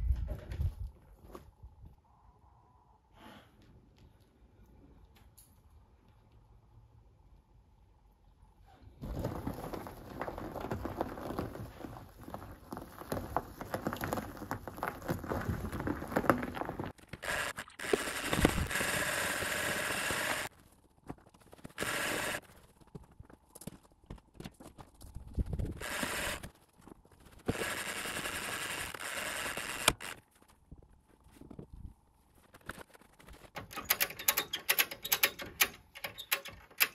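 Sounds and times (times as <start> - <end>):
winch running: 9.0 - 20.5
crackling and clicking: 9.0 - 36.9.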